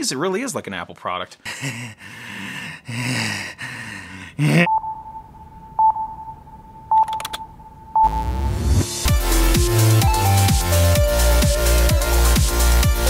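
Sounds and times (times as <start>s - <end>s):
short beeps: 4.7s - 8.6s
steady electronic tone: 4.7s - 10.3s
keyboard clicks: 7.0s - 7.4s
electronic music: 7.1s - 13.0s.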